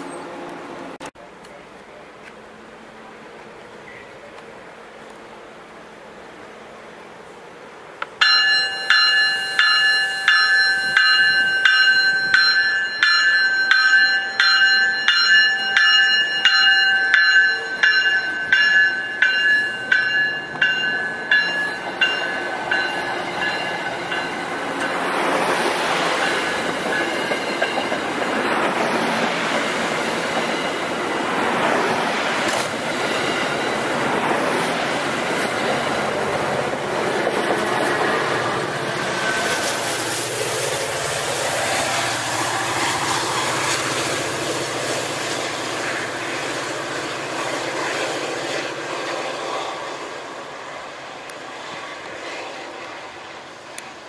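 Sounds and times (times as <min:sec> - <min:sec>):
train wheels clattering on rails: 0:08.0 - 0:49.1
bell ringing: 0:08.2 - 0:25.1.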